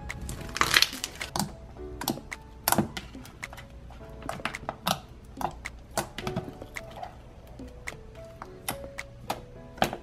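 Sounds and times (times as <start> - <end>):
quiet background music: 0.0 - 10.0
slime clicking and popping: 0.1 - 3.6.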